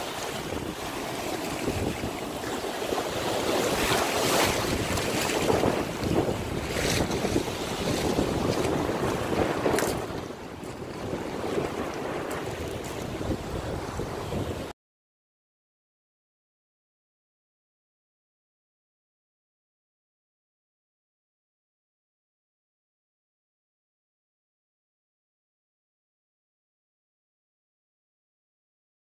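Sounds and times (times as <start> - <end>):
surf washing over sand and shells: 0.0 - 14.7
wind buffeting microphone: 0.0 - 14.7.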